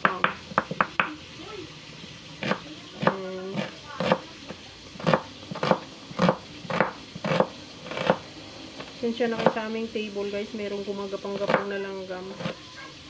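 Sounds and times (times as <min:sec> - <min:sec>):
knife chopping on wooden board: 0:00.0 - 0:01.1, 0:02.4 - 0:04.2, 0:05.0 - 0:08.2, 0:09.4 - 0:09.6, 0:11.4 - 0:11.7.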